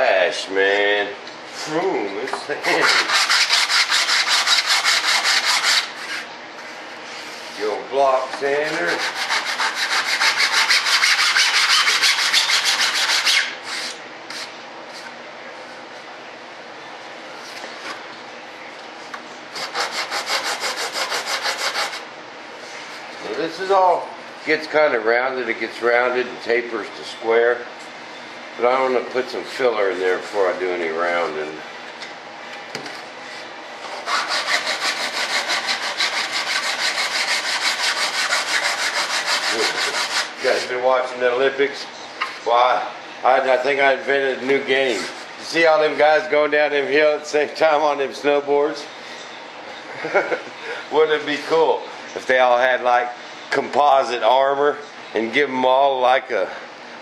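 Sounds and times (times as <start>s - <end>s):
sanding block rubbing foam: 2.6s - 6.2s, 8.6s - 14.5s, 19.6s - 22.0s, 33.9s - 40.7s.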